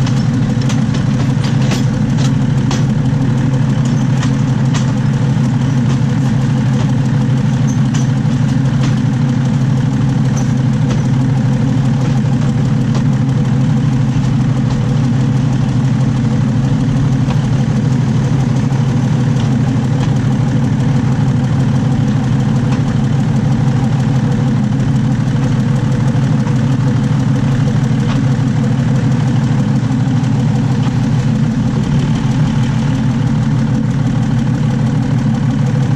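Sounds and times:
train wheels rolling on rails: 0.0 - 7.0
diesel engine drone: 0.0 - 35.9.

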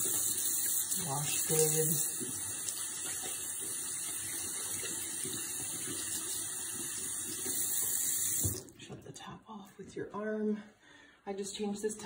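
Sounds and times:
faucet running into sink: 0.0 - 8.8
hands washing under water: 0.0 - 8.8.

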